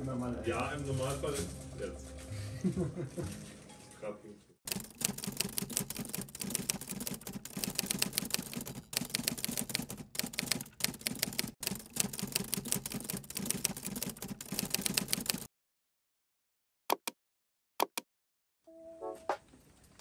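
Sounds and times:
typewriter key clacks: 4.7s - 15.5s.

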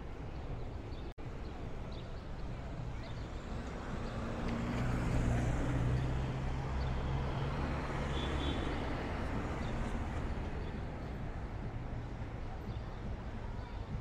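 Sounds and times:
road noise: 0.0s - 14.0s
vehicle engine hum passing: 3.5s - 11.2s.

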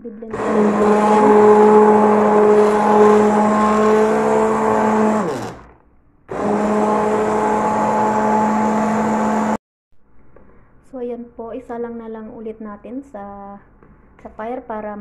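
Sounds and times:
immersion blender motor whirring: 0.3s - 9.6s.

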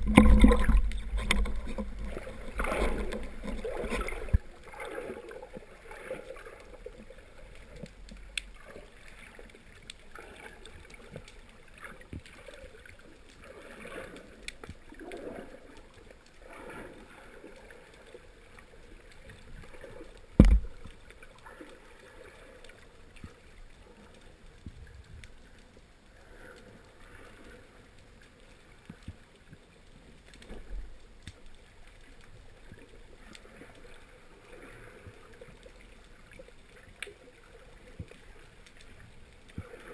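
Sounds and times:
muffled underwater swishing: 0.0s - 7.8s.

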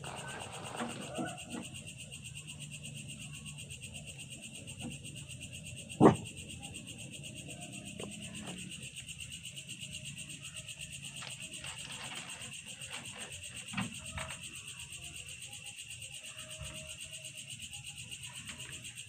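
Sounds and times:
night insects trilling: 0.0s - 19.0s
loud thump: 6.0s - 6.3s.

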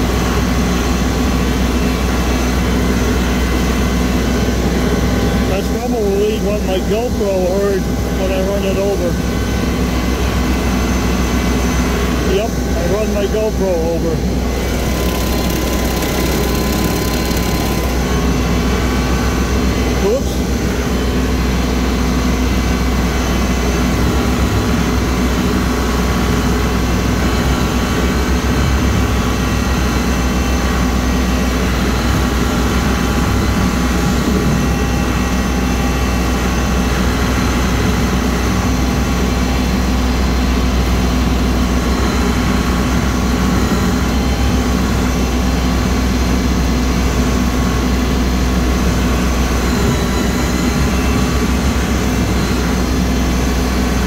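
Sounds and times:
tractor diesel engine under load: 12.4s - 21.5s
rotary cutter cutting grass: 12.8s - 18.6s.

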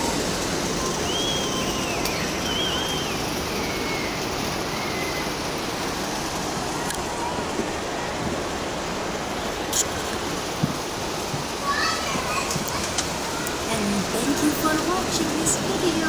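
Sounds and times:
fountain water rushing: 0.0s - 16.0s
ocean surf: 0.0s - 16.0s
faint high chirps: 0.8s - 5.4s.

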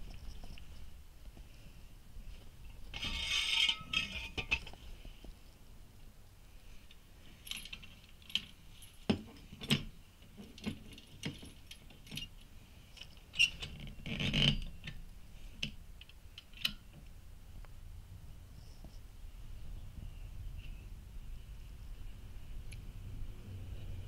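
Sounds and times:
chain and hook clinking on metal: 7.3s - 14.7s.

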